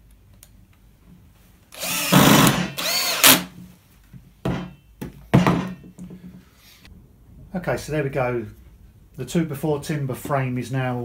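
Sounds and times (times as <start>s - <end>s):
cordless drill driving a screw: 1.8s - 3.5s
knock: 4.4s - 6.2s.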